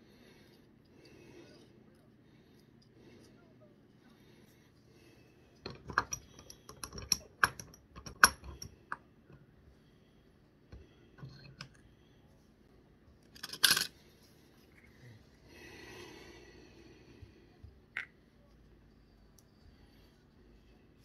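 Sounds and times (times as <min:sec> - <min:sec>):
metal parts clicking and clinking: 0:05.6 - 0:08.7, 0:13.2 - 0:14.0.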